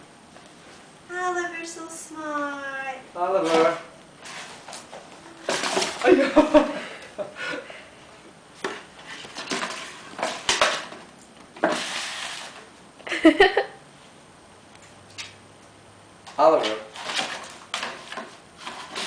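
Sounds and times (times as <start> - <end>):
cardboard box scraping on wood floor: 3.4 - 6.3, 8.6 - 10.8, 11.6 - 12.7, 16.9 - 19.0.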